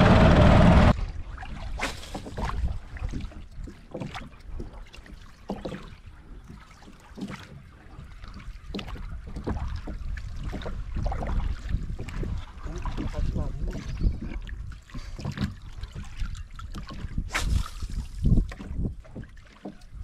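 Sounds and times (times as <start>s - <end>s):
boat knocking: 0.0s - 0.9s, 3.2s - 14.5s, 18.2s - 20.0s
low rumble: 0.0s - 1.2s
water splashing: 0.0s - 20.0s.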